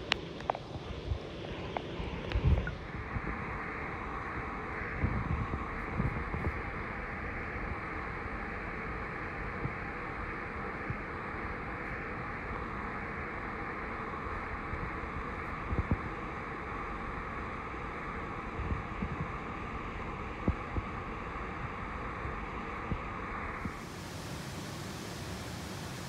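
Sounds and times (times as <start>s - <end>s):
river water flowing: 23.7s - 26.0s.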